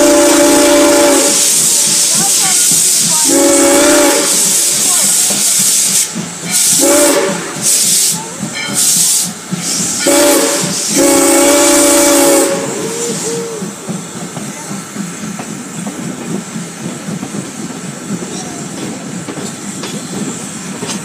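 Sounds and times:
steam whistle blasts: 0:00.0 - 0:02.1, 0:03.2 - 0:04.8, 0:06.6 - 0:08.2, 0:08.8 - 0:13.7
locomotive exhaust chuffs: 0:00.0 - 0:21.0
steam hissing: 0:00.0 - 0:21.0.

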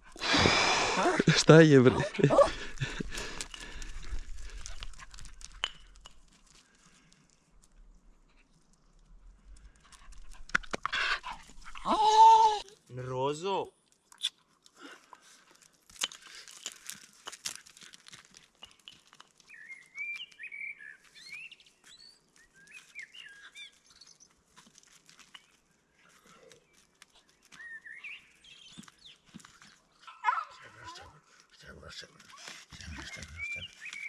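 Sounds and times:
crunches on gravel: 0:00.2 - 0:13.0, 0:14.4 - 0:30.1, 0:31.9 - 0:34.0
small birds chirping: 0:18.6 - 0:24.4, 0:25.3 - 0:34.0.

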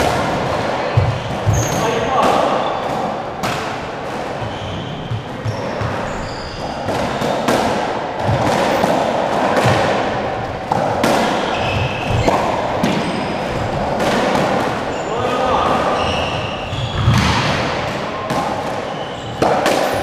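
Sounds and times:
squash ball hits: 0:00.0 - 0:20.0
shoes squeaking on wooden floor: 0:01.0 - 0:03.1, 0:04.4 - 0:07.2, 0:11.3 - 0:14.0, 0:14.8 - 0:17.4, 0:18.8 - 0:20.0.

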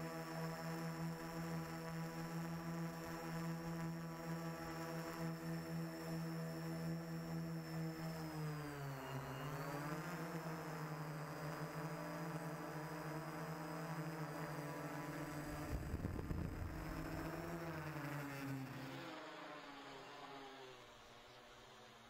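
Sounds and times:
drone motors buzzing: 0:00.8 - 0:22.0
wind buffeting rumble: 0:15.7 - 0:17.2.

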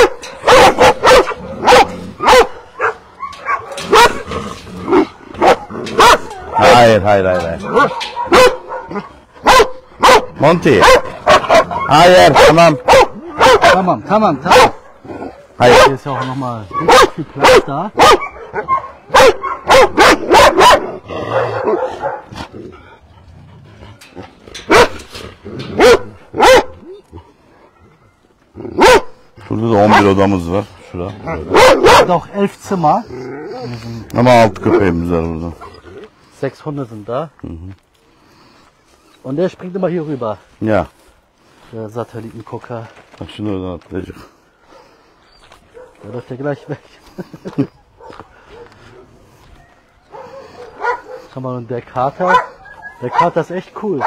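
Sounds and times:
dogs barking: 0:00.0 - 0:28.0, 0:28.7 - 0:32.8, 0:45.6 - 0:54.0.

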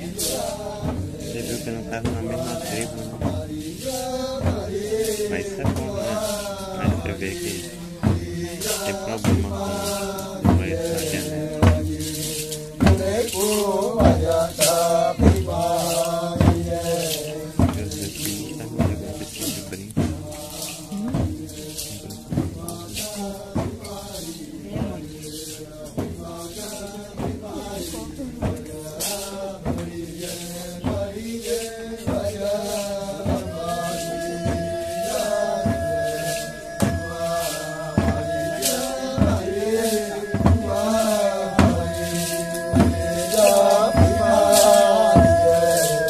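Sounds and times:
group chanting: 0:00.0 - 0:46.0
stamped beat: 0:00.0 - 0:46.0
high sung note: 0:33.3 - 0:46.0.

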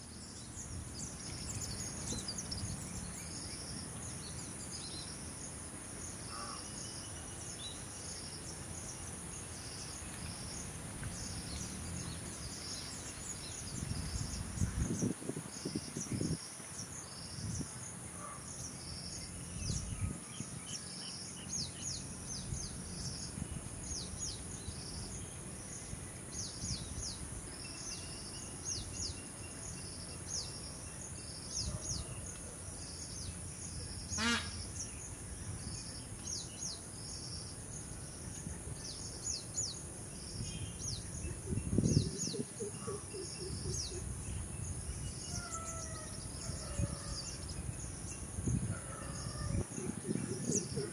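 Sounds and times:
insect chirps: 0:00.0 - 0:50.9
insect drone: 0:00.0 - 0:50.9
faint bird calls: 0:34.1 - 0:34.9.

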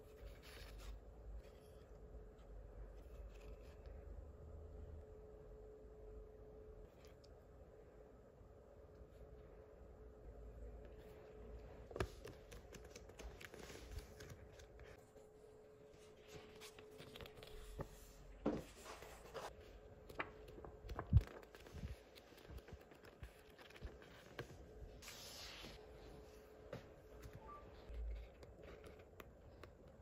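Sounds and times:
faint steady hum: 0:00.0 - 0:30.0
paper rustling and tapping: 0:20.0 - 0:24.5.

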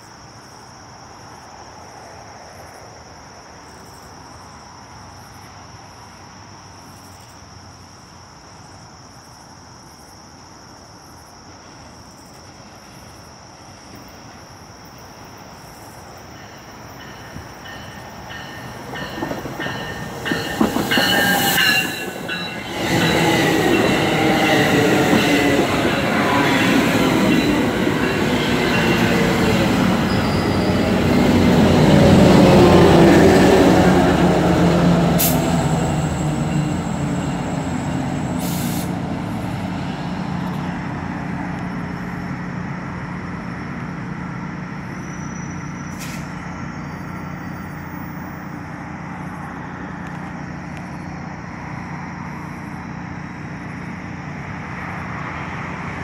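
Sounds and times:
crickets chirring: 0:00.0 - 0:56.0
train rolling rumble: 0:11.5 - 0:56.0
train wheel squeals: 0:16.4 - 0:34.4, 0:35.0 - 0:39.0, 0:43.8 - 0:48.6.

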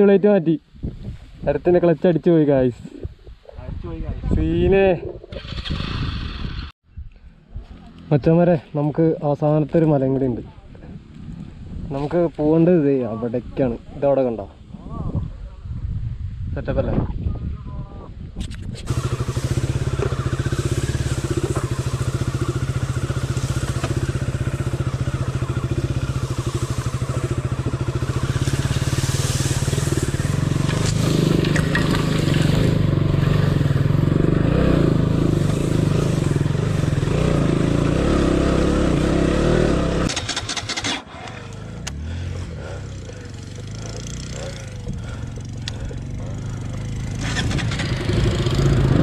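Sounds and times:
motorcycle engine under load: 0:05.3 - 0:06.8, 0:18.8 - 0:49.0.

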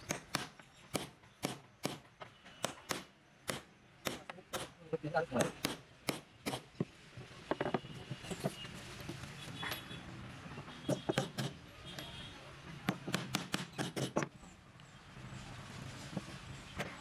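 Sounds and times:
hammer driving nails into wood: 0:00.0 - 0:02.0, 0:02.6 - 0:04.7, 0:10.9 - 0:11.6, 0:12.9 - 0:14.3.

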